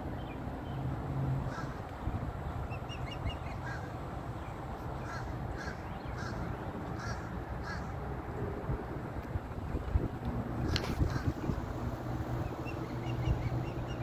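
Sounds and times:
low rush of background noise: 0.0 - 14.0
crows cawing: 1.5 - 1.8, 5.0 - 6.4, 7.0 - 7.9
bird chirping: 12.4 - 14.0.

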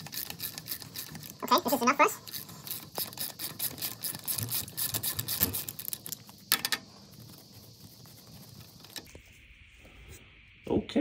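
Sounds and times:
ratchet wrench clicking: 0.0 - 6.8.

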